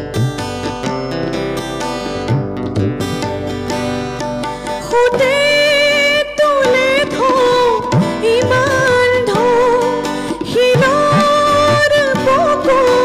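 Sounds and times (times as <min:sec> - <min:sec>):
acoustic guitar: 0:00.0 - 0:13.0
tabla: 0:00.0 - 0:13.0
woman singing: 0:04.8 - 0:13.0.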